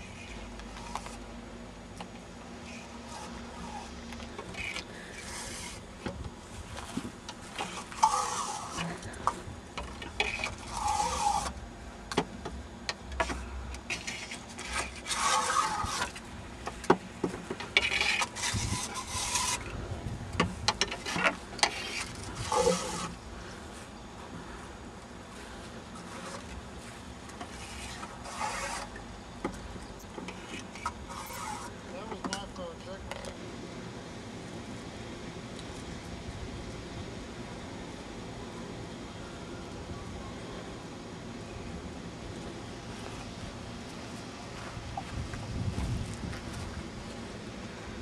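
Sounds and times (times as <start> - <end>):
wooden stick scraping in tubes: 0.0 - 1.3, 2.6 - 5.9, 6.8 - 11.6, 13.2 - 16.8, 17.4 - 19.8, 20.5 - 23.2, 25.9 - 29.0, 30.2 - 32.3.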